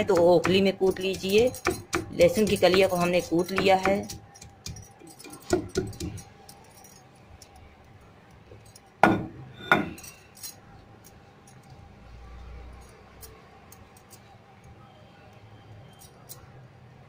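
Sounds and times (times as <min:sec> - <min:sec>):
stone pestle knocking on stone slab: 0:00.2 - 0:03.0, 0:05.4 - 0:06.2, 0:09.0 - 0:10.0.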